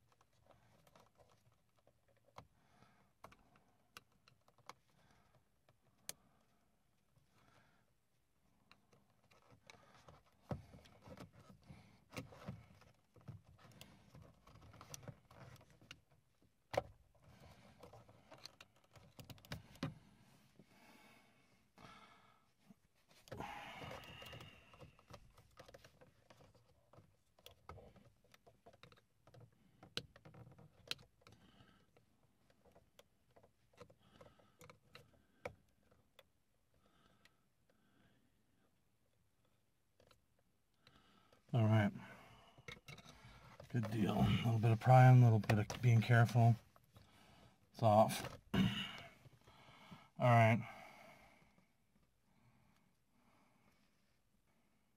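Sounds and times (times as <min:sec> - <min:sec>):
screwdriver clicks and scrapes on plastic: 0:00.0 - 0:02.5, 0:03.2 - 0:05.0, 0:08.7 - 0:20.0, 0:23.2 - 0:36.4, 0:39.9 - 0:40.2, 0:42.6 - 0:44.0.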